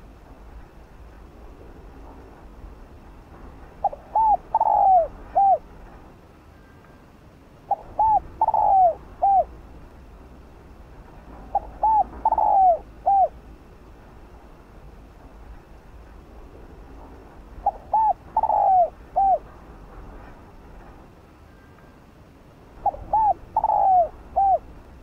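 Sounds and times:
dove cooing: 0:03.8 - 0:05.7, 0:07.7 - 0:09.6, 0:11.4 - 0:13.4, 0:17.6 - 0:19.5, 0:22.8 - 0:24.8.

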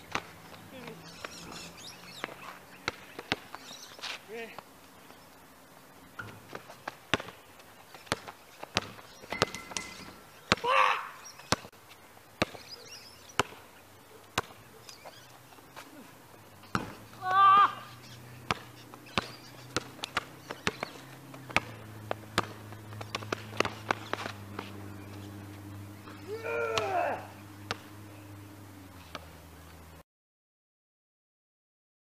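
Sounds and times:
basketball bouncing on asphalt: 0:00.0 - 0:05.2, 0:06.1 - 0:29.4
person shouting: 0:10.6 - 0:11.2, 0:17.2 - 0:18.0, 0:26.2 - 0:27.4.

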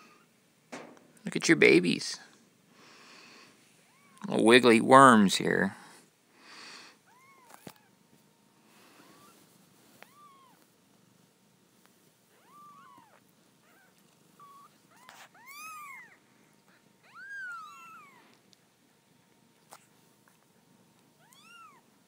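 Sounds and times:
kittens mewing: 0:07.0 - 0:07.9, 0:12.3 - 0:18.4.

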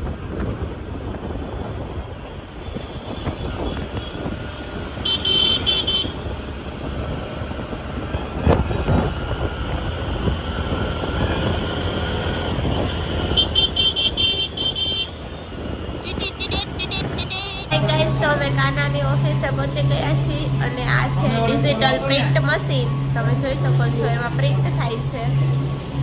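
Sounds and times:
wind and road noise: 0:00.0 - 0:26.0
rapid high-pitched horn beeps: 0:16.0 - 0:26.0.

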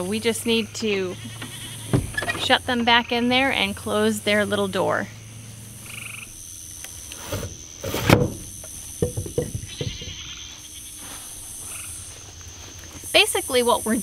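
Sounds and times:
crickets trilling: 0:00.0 - 0:14.0
wooden door knocking and scraping: 0:01.9 - 0:02.4, 0:07.2 - 0:10.2.

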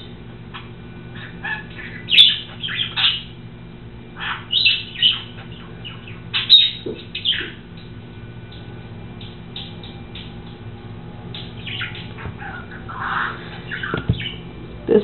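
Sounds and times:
steady low hum: 0:00.0 - 0:15.0
bird chirping and squawking: 0:00.5 - 0:03.4, 0:04.2 - 0:07.8, 0:09.2 - 0:10.5, 0:11.3 - 0:14.5.

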